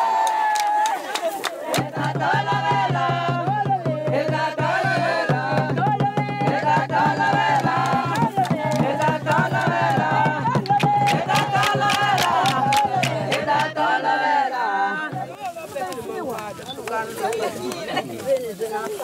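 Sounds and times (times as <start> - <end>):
hand clapping: 0.1 - 2.2, 6.6 - 13.8, 15.4 - 18.4
women singing: 0.1 - 15.5
hand drum beating: 1.8 - 13.8.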